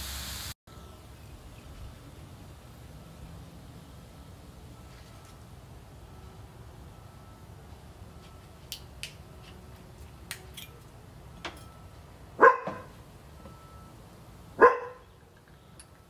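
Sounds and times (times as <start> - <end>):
dog barking: 12.4 - 12.9, 14.6 - 15.0.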